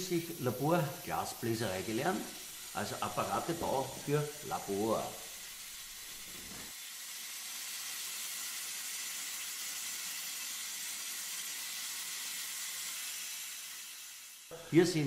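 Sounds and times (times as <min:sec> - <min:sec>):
bench torch flame hissing: 0:00.0 - 0:15.0.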